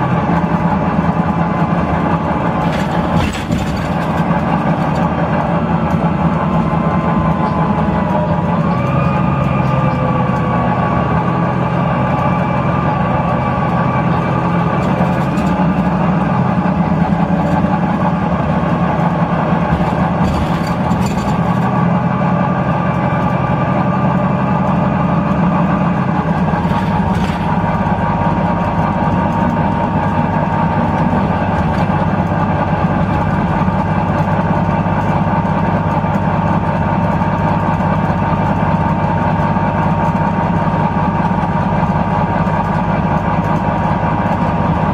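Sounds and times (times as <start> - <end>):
bus diesel engine running: 0.0 - 44.9
engine whine: 0.0 - 44.9.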